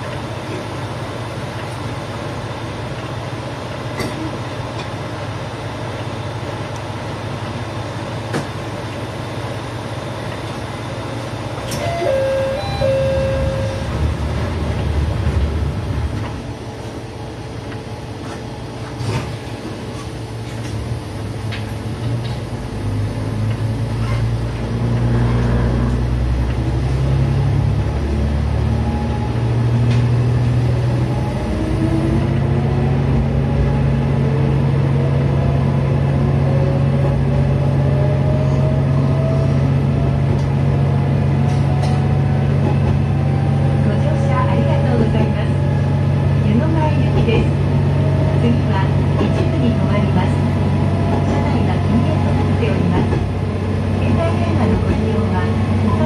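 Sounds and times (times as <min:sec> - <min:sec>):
diesel railcar engine: 0:00.0 - 0:56.0
rising whine: 0:11.8 - 0:15.0.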